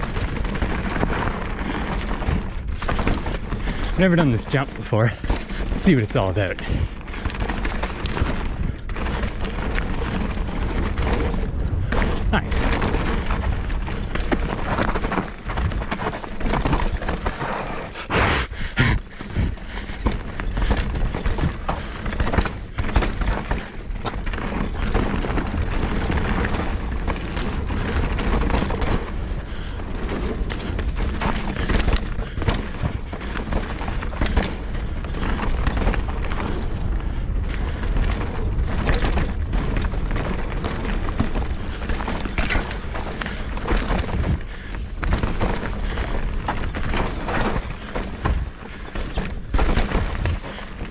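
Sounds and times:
bike clattering over bumps: 0:00.0 - 0:50.9
tyres rolling over dirt: 0:00.0 - 0:50.9
wind rush on microphone: 0:00.0 - 0:50.9.

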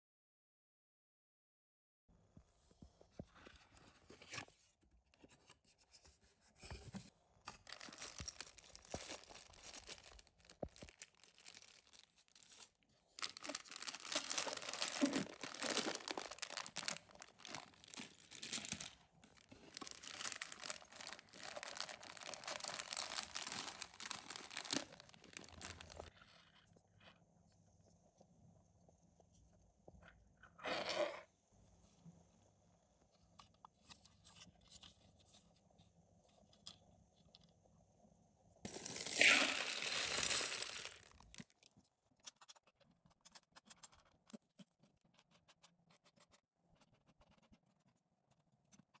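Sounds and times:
plastic bags crinkling: 0:07.5 - 0:26.1, 0:38.7 - 0:41.6.

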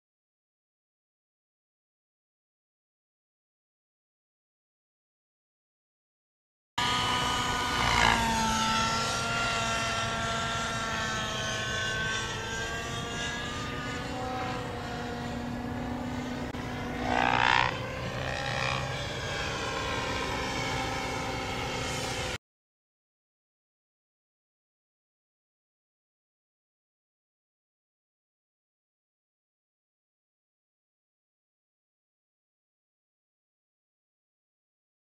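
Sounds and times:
model helicopter engine whining: 0:06.8 - 0:22.4.

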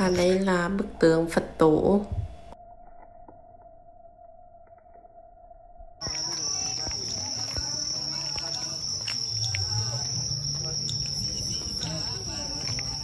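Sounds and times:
night insects trilling: 0:00.0 - 0:13.0
faint murmuring voices: 0:06.0 - 0:13.0.

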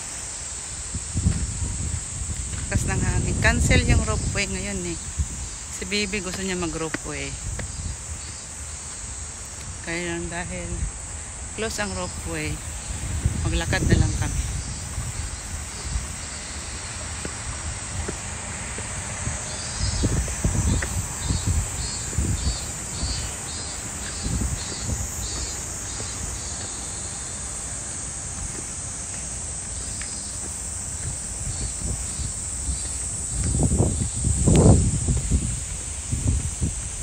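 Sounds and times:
steady high hiss: 0:00.0 - 0:37.0
walking thumps and rumbles: 0:01.2 - 0:03.8, 0:05.1 - 0:10.1, 0:13.1 - 0:37.0.

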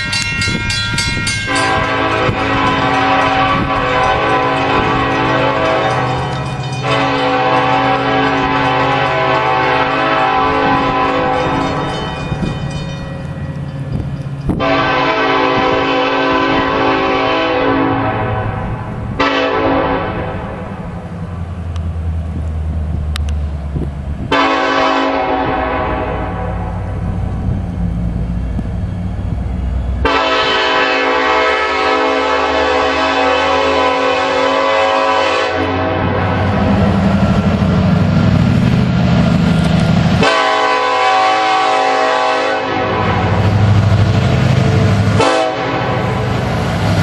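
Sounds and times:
locomotive air horn blasts: 0:01.4 - 0:12.0, 0:14.5 - 0:20.8, 0:24.3 - 0:26.9, 0:30.0 - 0:36.6, 0:40.1 - 0:43.8, 0:45.0 - 0:46.5.

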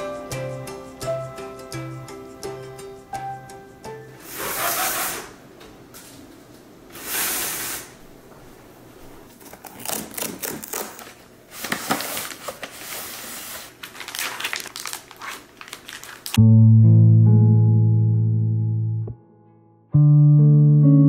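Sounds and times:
packaging crackling and rustling: 0:09.3 - 0:16.4
cardboard tear strip ripping: 0:09.4 - 0:11.2.

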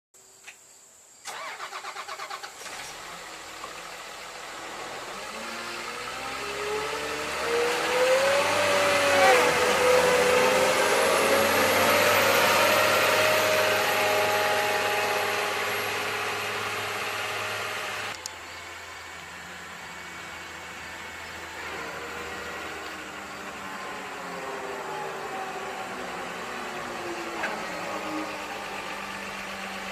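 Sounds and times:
wheel loader diesel engine passing: 0:01.3 - 0:29.9.

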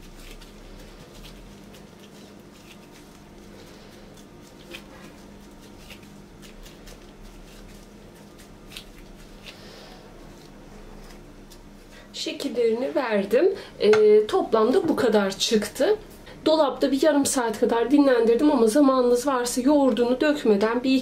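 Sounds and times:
gloved hands squishing food: 0:00.0 - 0:13.4
steady low hum: 0:00.0 - 0:21.0.

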